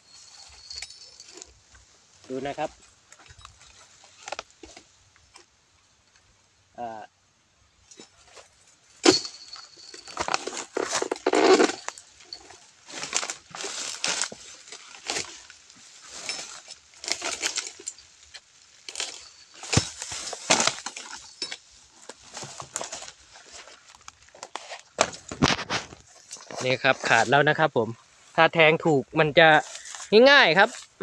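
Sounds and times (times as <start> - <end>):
chisel crunching into palm stalk: 16.2 - 23.2.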